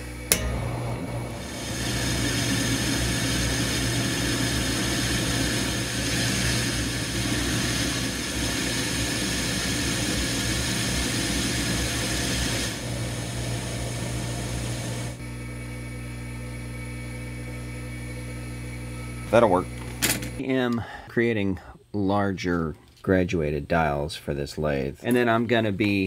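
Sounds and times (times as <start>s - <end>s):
lathe machine hum: 0.0s - 20.4s
hiss of lathe cutting: 1.2s - 15.2s.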